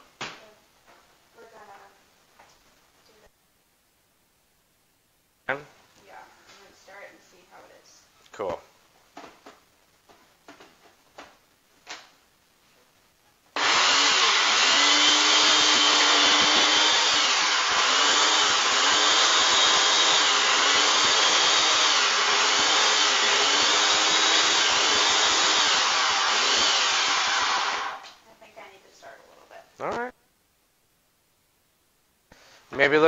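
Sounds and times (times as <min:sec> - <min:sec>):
electric blender running: 0:13.6 - 0:28.1.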